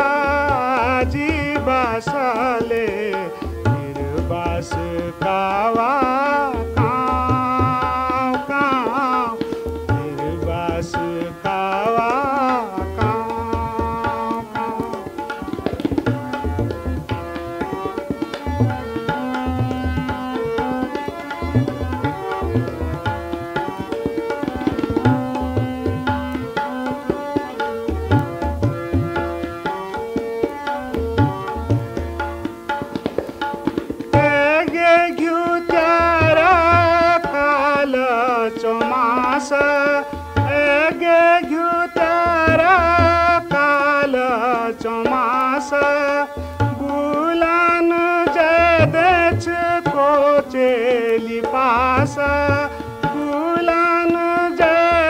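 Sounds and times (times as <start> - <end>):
hand drums rhythm: 11.9 - 35.0.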